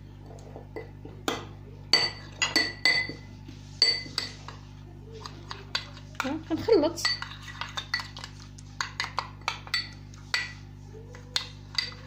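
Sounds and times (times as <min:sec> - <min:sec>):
metal spoon clinking in a bowl: 0:00.8 - 0:03.2, 0:07.0 - 0:12.0
spoon scraping a bowl: 0:07.0 - 0:12.0.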